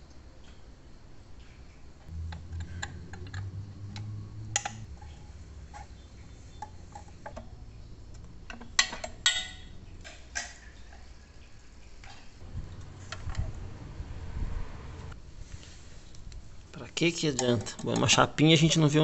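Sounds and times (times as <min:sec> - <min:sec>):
small clicks and knocks: 0:02.0 - 0:11.1
low rumble: 0:02.1 - 0:08.5, 0:12.4 - 0:15.2.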